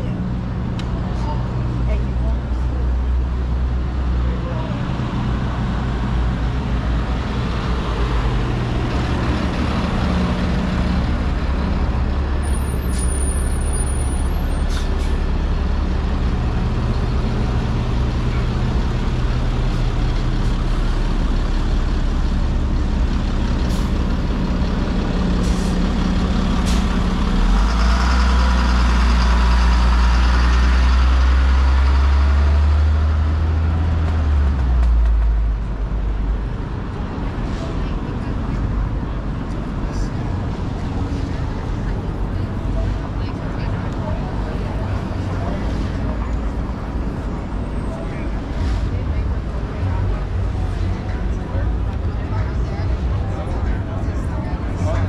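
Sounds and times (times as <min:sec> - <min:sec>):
heavy vehicle engine droning: 0:00.0 - 0:55.0.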